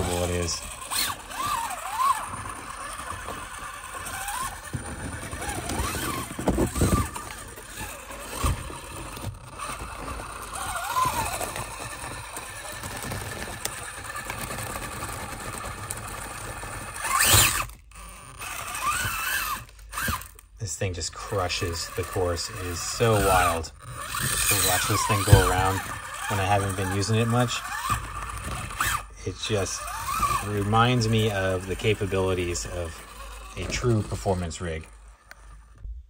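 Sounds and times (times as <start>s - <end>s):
electric motor whining: 0.0s - 20.6s, 21.2s - 35.8s.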